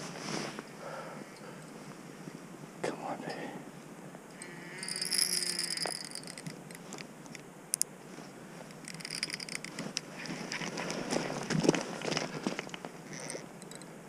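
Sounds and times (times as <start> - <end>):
fishing reel buzzing: 4.4 - 6.5, 8.9 - 9.8, 13.1 - 13.8.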